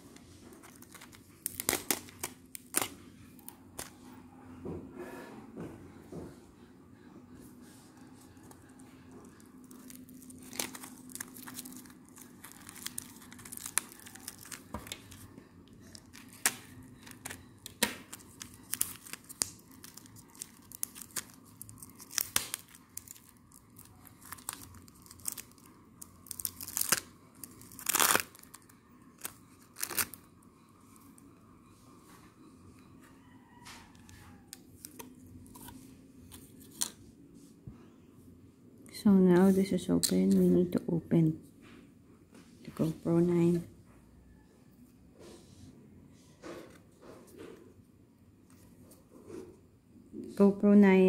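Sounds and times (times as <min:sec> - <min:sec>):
plastic blister pack crinkling: 0:00.5 - 0:04.0, 0:08.4 - 0:30.3.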